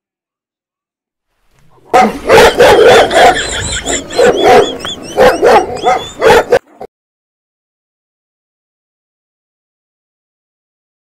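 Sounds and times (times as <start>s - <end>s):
dog barking: 1.8s - 6.9s.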